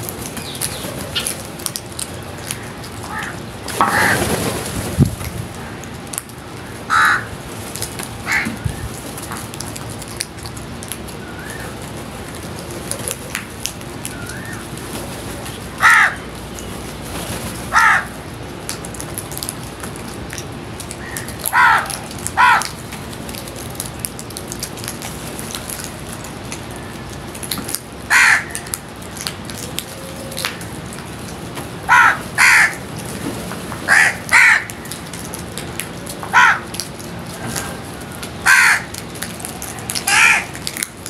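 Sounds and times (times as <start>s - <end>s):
steady background noise: 0.0s - 41.0s
crows cawing: 2.4s - 4.3s, 6.9s - 7.4s, 8.2s - 8.7s, 15.8s - 16.3s, 17.7s - 18.2s, 21.0s - 22.8s, 28.1s - 28.8s, 31.9s - 32.8s, 33.9s - 35.0s, 36.3s - 36.8s, 38.4s - 39.0s, 40.0s - 40.7s.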